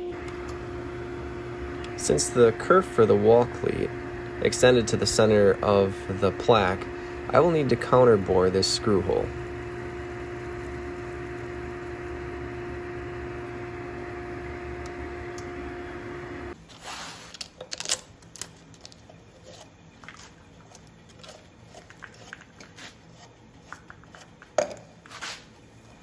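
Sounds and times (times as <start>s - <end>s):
drill press humming: 0.0s - 16.6s.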